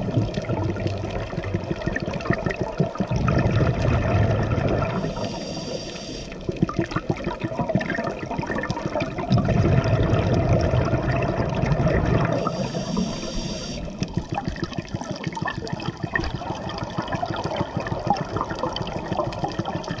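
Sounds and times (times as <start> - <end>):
bubbling exhaled air: 0.0 - 20.0
regulator hissing inhale: 4.9 - 6.4, 12.3 - 14.2.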